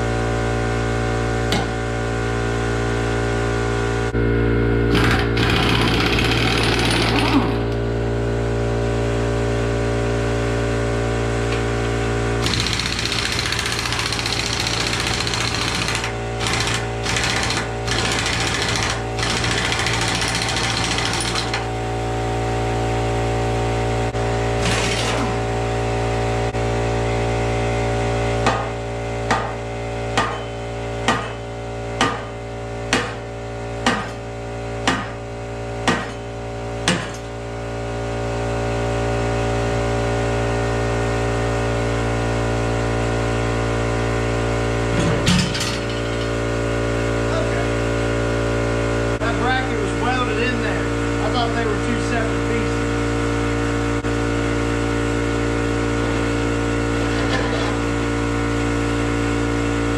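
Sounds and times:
machine hum: 0.0s - 59.9s
impact wrench rattling: 4.9s - 7.6s, 12.4s - 21.7s.

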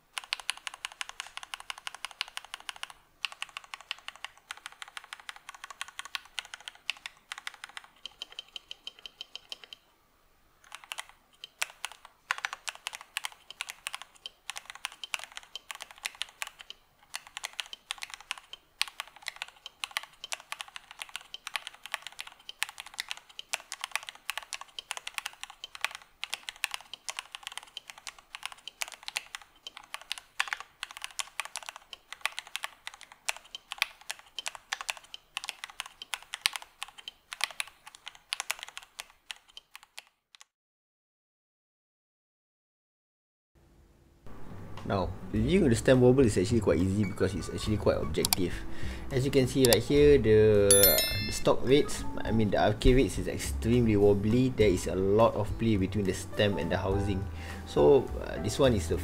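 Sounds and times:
mechanical keyboard typing: 0.1s - 9.8s, 10.6s - 40.5s, 48.1s - 48.5s, 49.4s - 49.9s, 50.7s - 51.5s.

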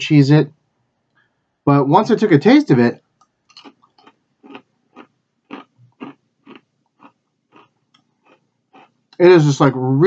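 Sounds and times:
crunching of cracker chewing: 3.5s - 9.2s.

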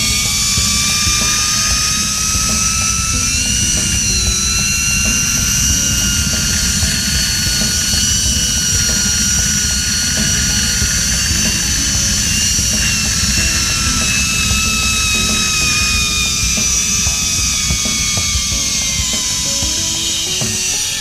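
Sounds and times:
wind buffeting microphone: 0.0s - 21.0s
zipline pulley whine: 0.0s - 21.0s.

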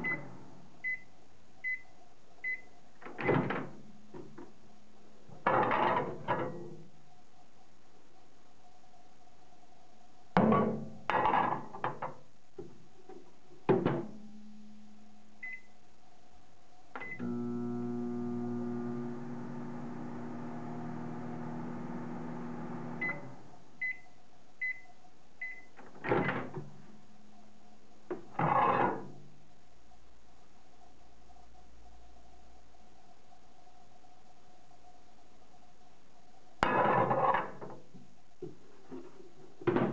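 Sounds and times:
microwave running hum: 17.0s - 23.7s
end-of-cycle beeps: 22.9s - 25.7s.

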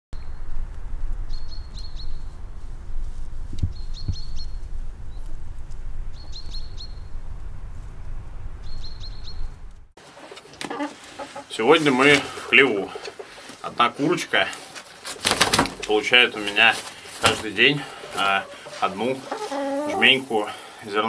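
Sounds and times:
steady low rumble: 0.2s - 10.0s
bird singing high phrase: 8.6s - 9.6s.

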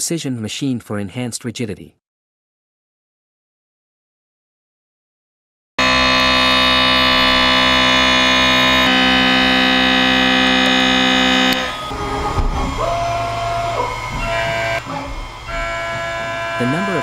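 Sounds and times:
milling cutter whine: 5.8s - 17.0s
quieter machine noises: 5.8s - 17.0s.

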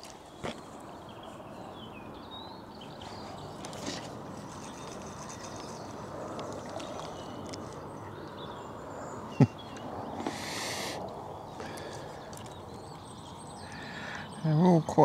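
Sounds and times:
faint bird calls: 2.4s - 14.7s.

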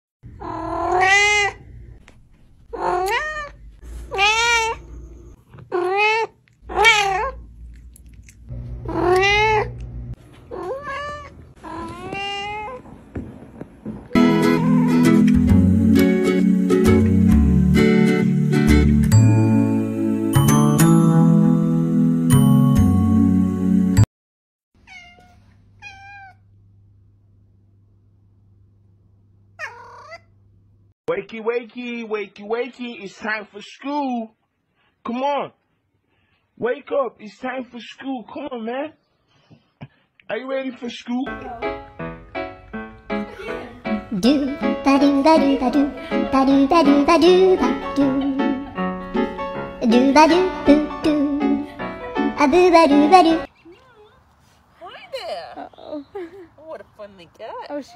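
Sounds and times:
cat meowing: 0.4s - 1.6s, 2.7s - 7.4s, 8.8s - 9.8s, 10.5s - 12.8s, 14.5s - 15.2s, 24.8s - 26.4s, 29.6s - 30.3s.

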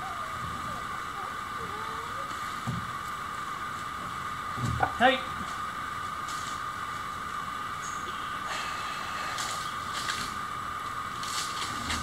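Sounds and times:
steady high-pitched drone: 0.0s - 12.0s
rustles and scrapes: 9.3s - 10.4s, 11.1s - 12.0s.

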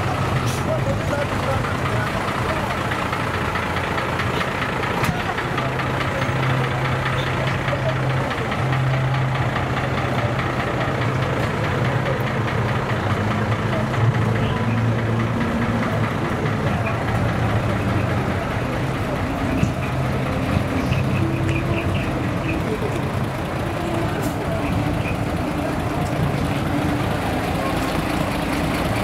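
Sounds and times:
diesel truck engine idling: 0.0s - 29.0s.

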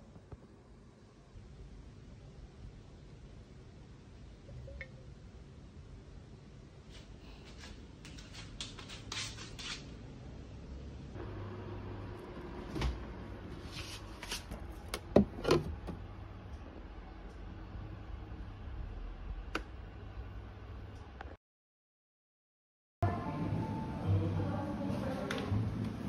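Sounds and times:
refrigerator opening: 14.4s - 16.0s.

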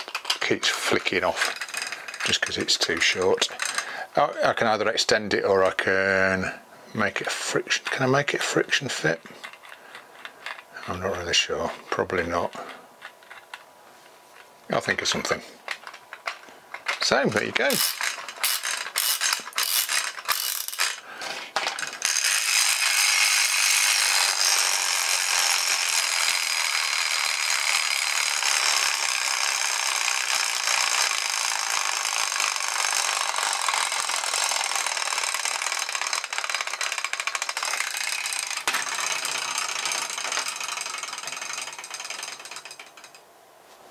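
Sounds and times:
clockwork ratchet clicks: 0.0s - 4.0s, 15.7s - 21.0s, 21.6s - 43.2s
plastic gear train rattling: 0.0s - 4.8s, 7.2s - 13.7s, 14.8s - 43.3s.

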